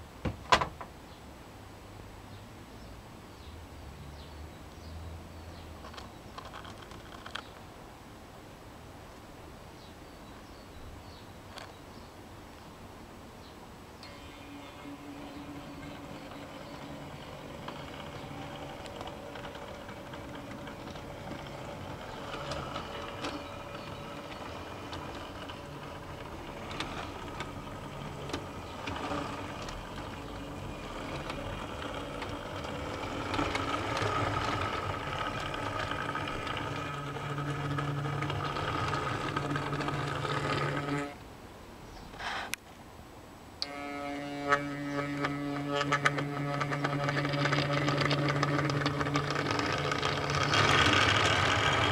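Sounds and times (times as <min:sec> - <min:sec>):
wheels clicking over rail joints: 0:05.5 - 0:07.6, 0:14.0 - 0:41.2, 0:43.6 - 0:51.9
model train motor humming: 0:14.0 - 0:41.2, 0:43.6 - 0:51.9.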